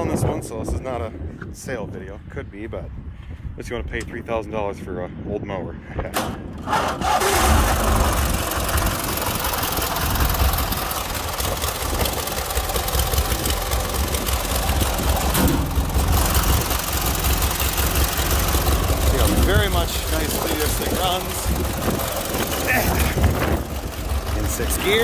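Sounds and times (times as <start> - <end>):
engine idling: 6.5 - 25.0
riding mower engine starting: 6.6 - 25.0.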